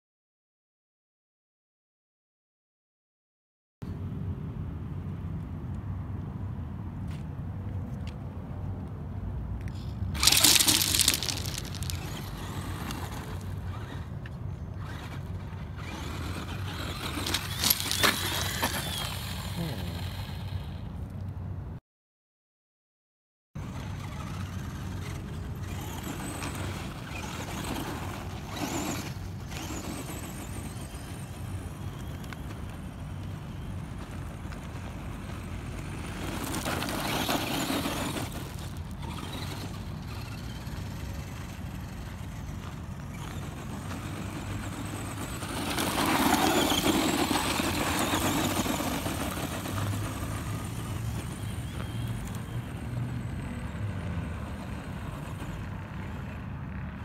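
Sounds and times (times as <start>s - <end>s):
rc truck tyres crunching gravel: 10.1s - 20.8s, 23.6s - 57.0s.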